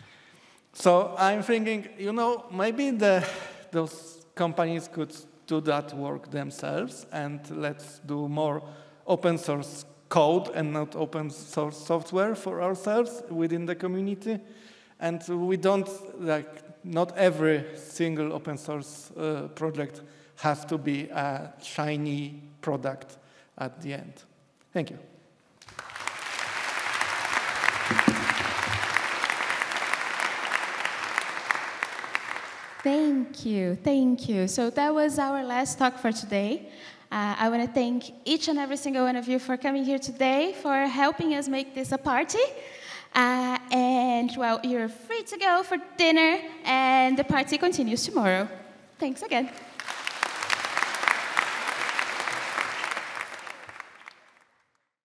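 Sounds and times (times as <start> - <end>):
audience applauding: 25.6 - 32.9, 49.5 - 54.7.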